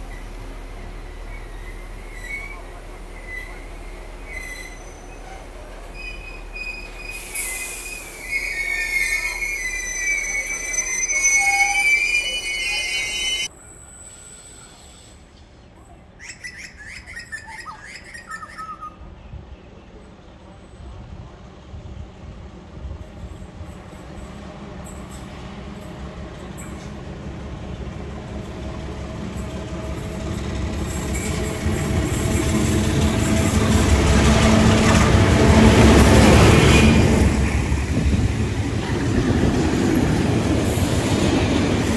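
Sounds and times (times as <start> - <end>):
diesel locomotive engine rumble: 0.0 - 41.9
train wheels squealing on rails: 1.1 - 16.5, 23.2 - 27.2, 28.3 - 35.1.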